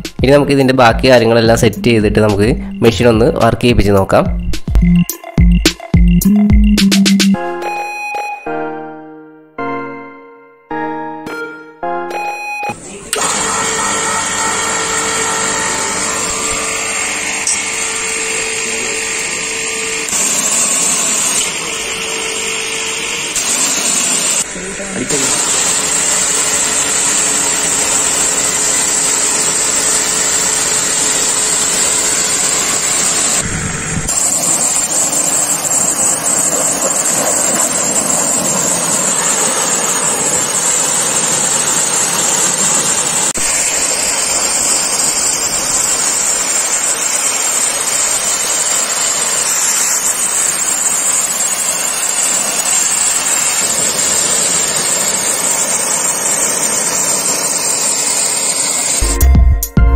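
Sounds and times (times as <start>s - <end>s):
pressure washer spraying: 12.8s - 59.1s.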